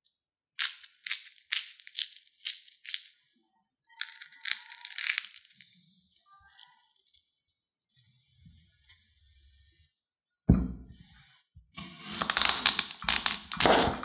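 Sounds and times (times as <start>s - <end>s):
fried food crust crackling: 0.6s - 3.2s, 4.0s - 5.8s, 11.8s - 14.0s.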